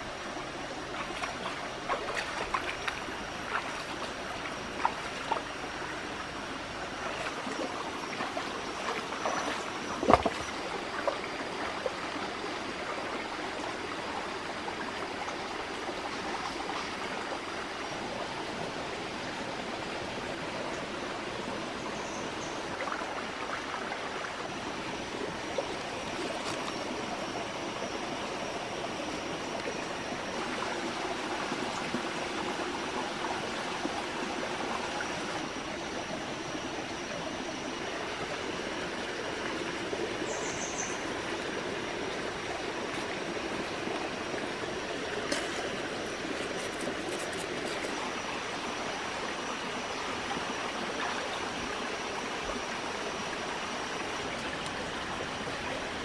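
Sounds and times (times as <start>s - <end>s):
stream running over rocks: 0.0s - 56.0s
footsteps splashing through water: 1.0s - 4.2s, 45.2s - 48.0s.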